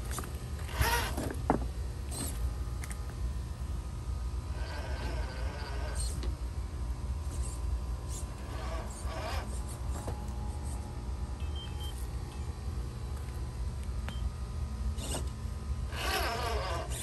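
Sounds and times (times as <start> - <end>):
electric motor whirring: 0.1 - 1.4, 4.4 - 6.3, 7.2 - 10.9, 15.0 - 17.0.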